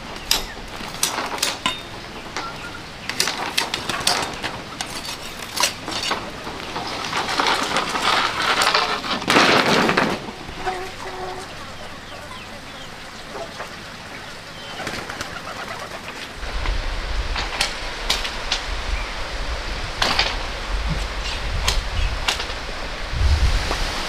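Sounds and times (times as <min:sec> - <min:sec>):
farmyard birds calling: 0:00.0 - 0:19.8, 0:20.4 - 0:22.9
low rumble: 0:16.4 - 0:24.0.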